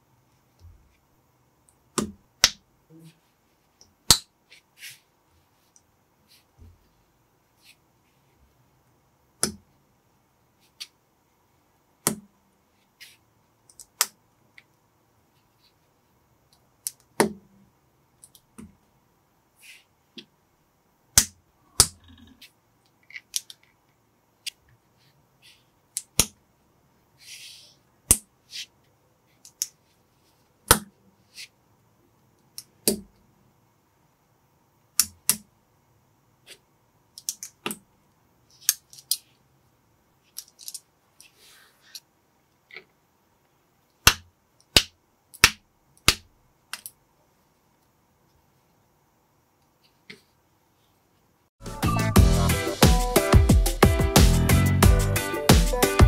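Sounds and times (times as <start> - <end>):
plastic bricks clicking together: 37.2 - 37.8, 40.3 - 40.8.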